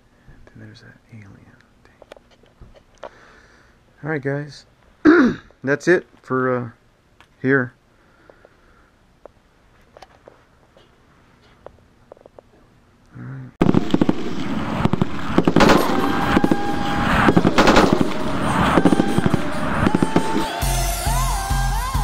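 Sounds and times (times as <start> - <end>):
dense crackling noise with held tones: 9.2 - 20.7
deep beat with rising synth: 15.0 - 22.0.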